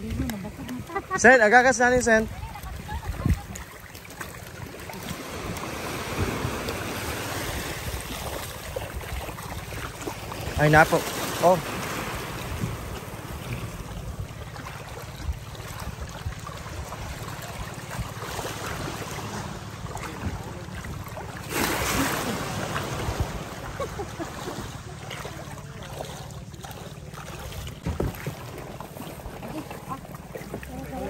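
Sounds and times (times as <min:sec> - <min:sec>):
boat engine running: 0:00.0 - 0:31.0
water rushing: 0:00.0 - 0:31.0
wind on microphone: 0:02.3 - 0:03.7, 0:12.1 - 0:14.4.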